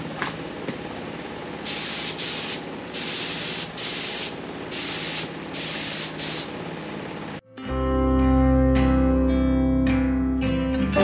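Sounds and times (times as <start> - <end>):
exhaust fan rushing: 0.0 - 7.4
paint spray gun hissing: 1.6 - 6.6.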